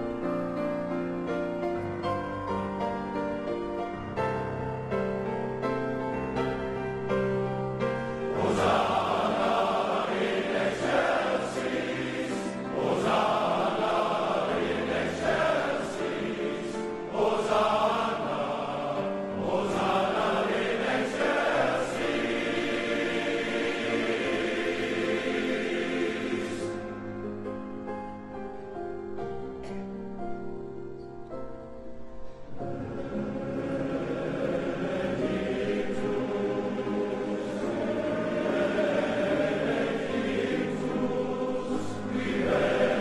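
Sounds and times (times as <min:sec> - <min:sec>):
piano accompaniment: 0:00.0 - 0:43.0
male voice choir singing: 0:08.3 - 0:26.9, 0:32.6 - 0:43.0.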